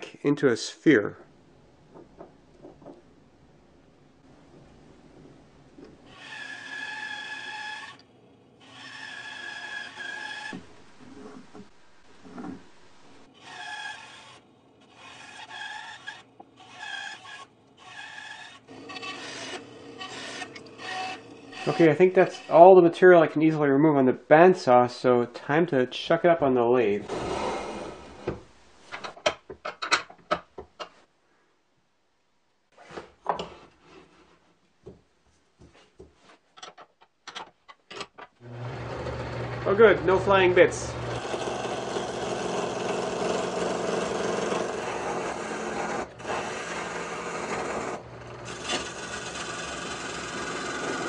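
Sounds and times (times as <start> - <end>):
bandsaw cutting wood: 13.3 - 22.8, 27.0 - 28.2, 38.4 - 51.0.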